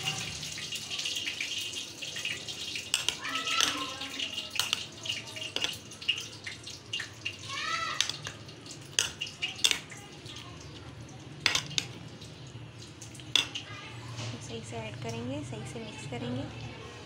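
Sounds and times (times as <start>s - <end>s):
wet squelching of stirred mixture: 0.0s - 15.5s
spoon clinking against glass: 5.5s - 5.8s.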